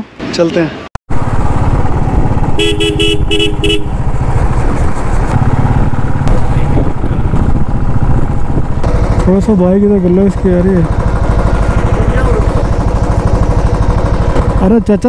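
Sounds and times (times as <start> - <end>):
motorcycle engine thumping: 1.2 - 15.0
vehicle horn beeps: 2.6 - 4.0.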